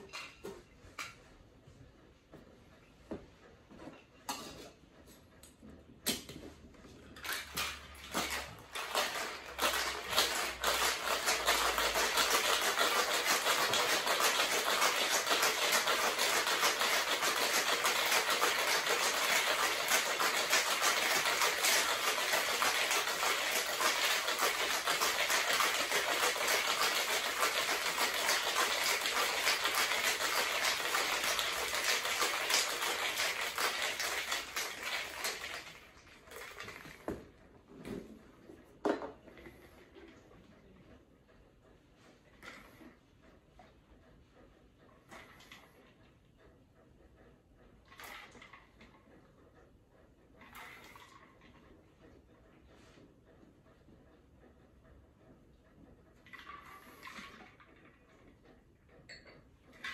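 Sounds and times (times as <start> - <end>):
ice rattling in cocktail shaker: 7.2 - 37.0.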